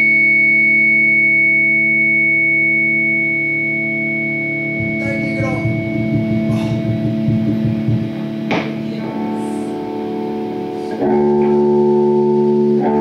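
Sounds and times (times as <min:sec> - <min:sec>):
distorted electric guitar chord: 0:04.0 - 0:13.0
rough low rumble: 0:04.7 - 0:10.2.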